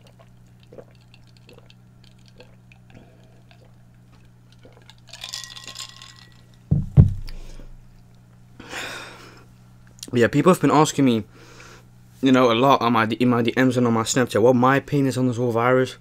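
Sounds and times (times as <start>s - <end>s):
soft gulping: 0.0s - 5.7s
glass knocking on wooden board: 6.7s - 7.4s.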